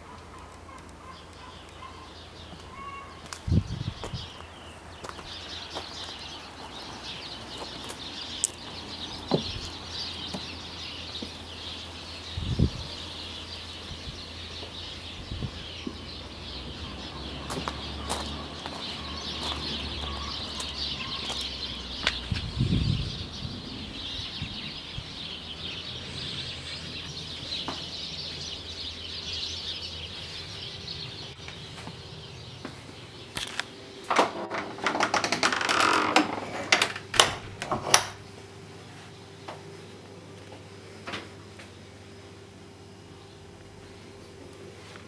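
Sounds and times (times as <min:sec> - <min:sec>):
small birds chirping: 0:00.0 - 0:34.1, 0:38.2 - 0:45.0
wooden door latch knocks and clicks: 0:34.1 - 0:38.2.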